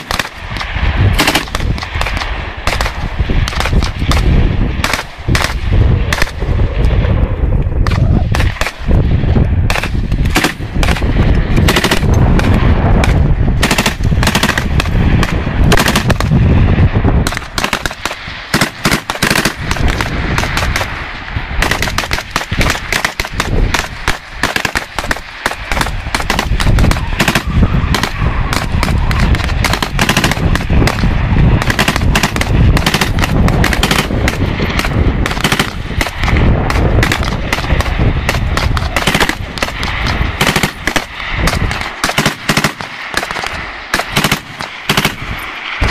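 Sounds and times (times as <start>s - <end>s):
machine-gun and rifle fire: 0.0s - 6.4s, 7.8s - 9.0s, 9.7s - 45.9s.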